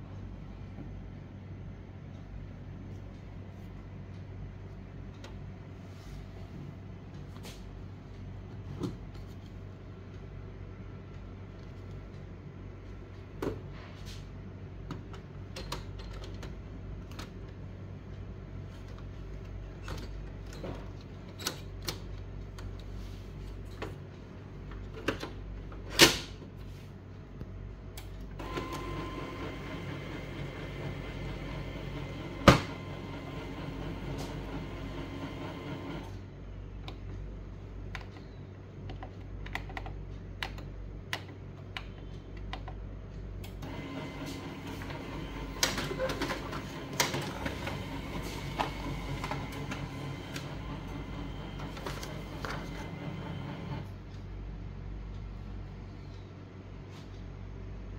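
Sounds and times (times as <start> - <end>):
printer mechanism whirring: 27.9 - 37.2, 43.4 - 54.2
printer door snapping shut: 32.4 - 32.8.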